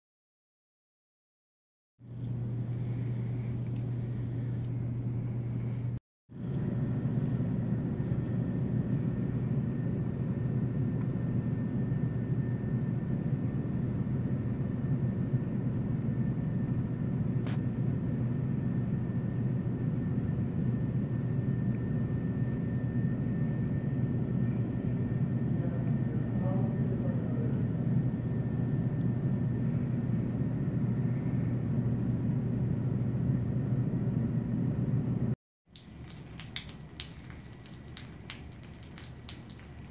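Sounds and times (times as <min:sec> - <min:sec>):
water pouring through ceiling: 0:35.7 - 0:39.9.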